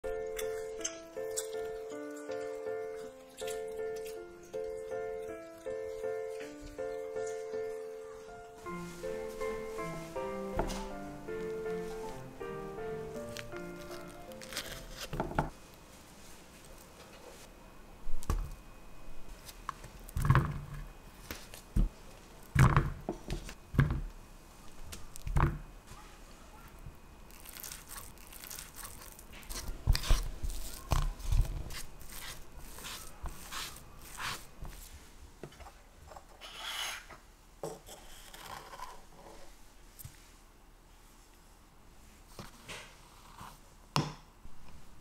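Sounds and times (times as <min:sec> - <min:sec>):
fork mashing potato: 0:28.4 - 0:34.9.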